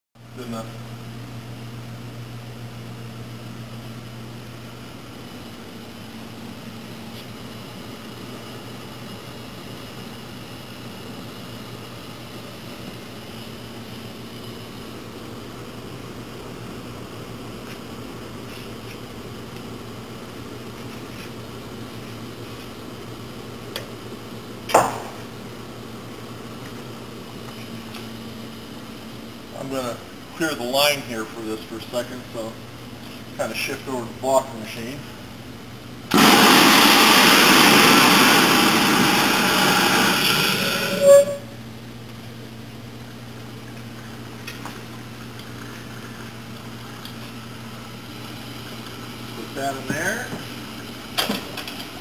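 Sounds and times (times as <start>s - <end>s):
low hum of shop equipment: 0.2s - 52.0s
steam burst: 36.1s - 41.4s.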